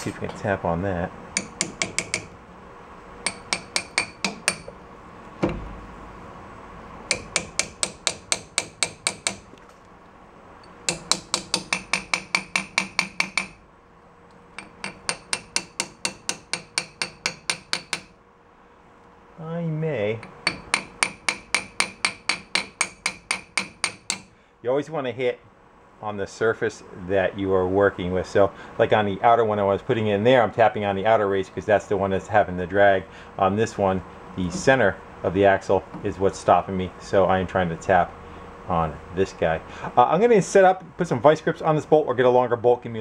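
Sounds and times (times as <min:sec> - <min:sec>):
small hammer tapping on metal: 0:01.4 - 0:02.3, 0:03.2 - 0:04.8, 0:07.1 - 0:09.4, 0:10.6 - 0:13.6, 0:14.6 - 0:18.1, 0:20.2 - 0:24.3
dull thump: 0:05.4 - 0:05.8.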